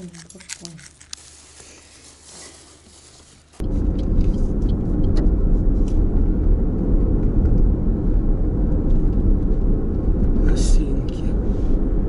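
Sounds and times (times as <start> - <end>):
car engine and tyres rumbling: 3.0 - 12.0.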